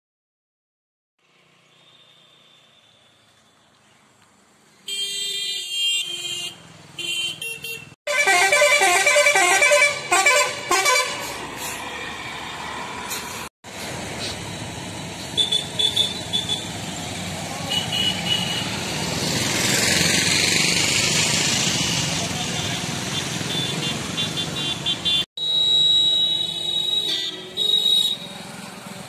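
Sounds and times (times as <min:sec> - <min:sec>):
traffic noise: 0:01.2 - 0:29.0
horn blasts: 0:04.9 - 0:11.4
horn repeating multi-note pattern: 0:08.1 - 0:11.2.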